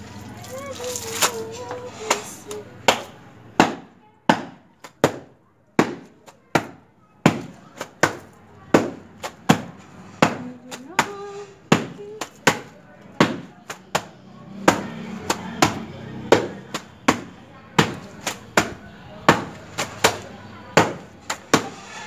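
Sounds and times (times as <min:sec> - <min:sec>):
wooden bat slapping wet towel: 0:02.8 - 0:11.1, 0:11.7 - 0:21.8.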